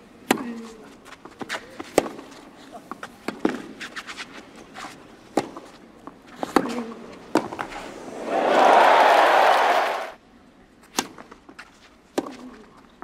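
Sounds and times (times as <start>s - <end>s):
tennis ball hit by rackets: 5.3s - 5.7s, 6.4s - 7.8s
crowd cheering and applauding: 8.1s - 10.2s.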